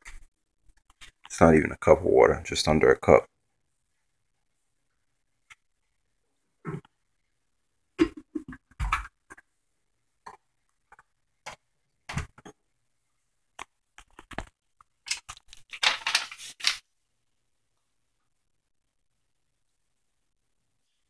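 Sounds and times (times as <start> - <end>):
plastic pouch crinkling: 14.2 - 16.8.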